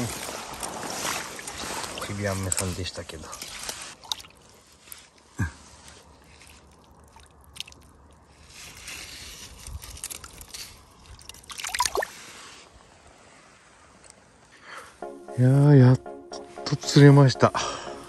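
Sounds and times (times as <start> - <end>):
water splashing: 0.6 - 2.4, 3.5 - 4.7, 6.2 - 8.2, 11.2 - 12.4.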